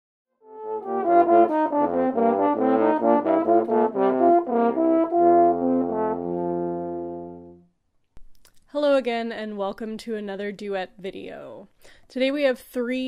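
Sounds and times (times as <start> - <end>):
french horn playing: 0.4 - 7.7.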